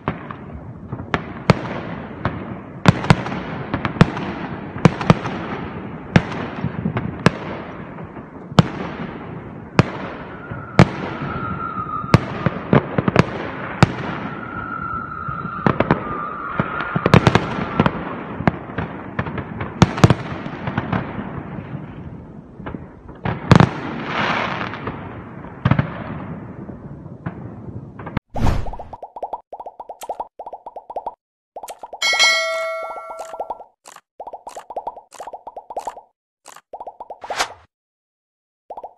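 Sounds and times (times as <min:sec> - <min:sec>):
thin steady whistle: 0:10.4 - 0:12.1, 0:14.3 - 0:17.0.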